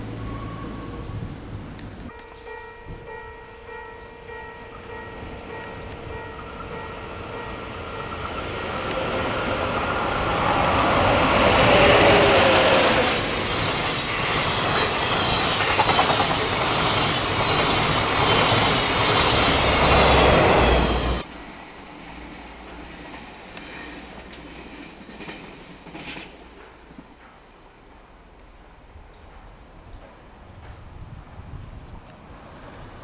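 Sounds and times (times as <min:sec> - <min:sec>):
train passing at speed: 0:00.0 - 0:33.0
wheels clacking over rail joints: 0:04.7 - 0:21.2, 0:22.2 - 0:27.5.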